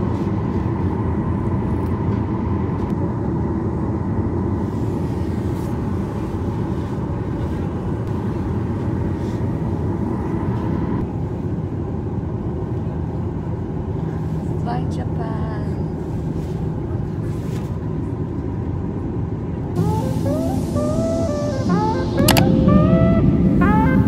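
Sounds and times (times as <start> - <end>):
air-conditioning rumble and hiss: 0.0 - 24.0
jet engines running: 18.9 - 24.0.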